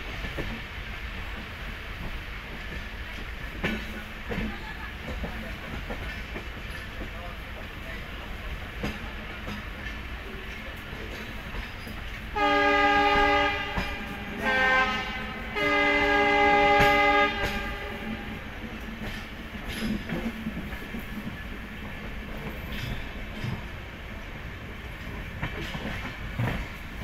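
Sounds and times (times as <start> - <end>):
train wheels clattering on rails: 0.0 - 27.0
train horn blasts: 12.3 - 18.5.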